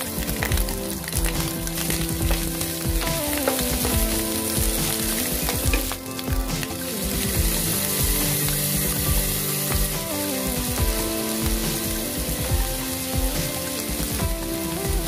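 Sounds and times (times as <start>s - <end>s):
food sizzling in pan: 0.0s - 15.0s.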